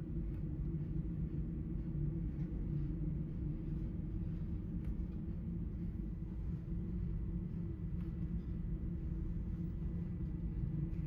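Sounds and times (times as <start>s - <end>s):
low machinery drone: 0.0s - 11.0s.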